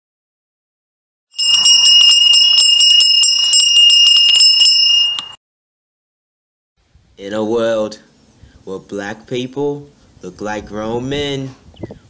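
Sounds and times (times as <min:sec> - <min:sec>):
bells jingling rapidly: 0:01.4 - 0:05.4.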